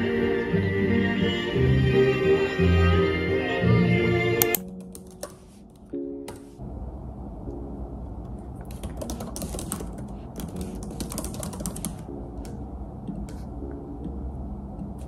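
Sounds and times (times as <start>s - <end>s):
typing on laptop keyboard: 4.4s - 5.9s, 8.6s - 12.6s
low steady hum: 5.4s - 15.0s.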